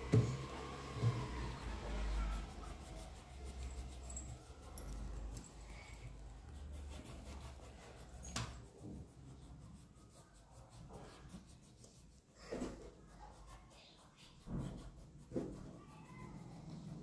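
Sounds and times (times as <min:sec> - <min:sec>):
pencil scratching on paper: 0:00.0 - 0:17.0.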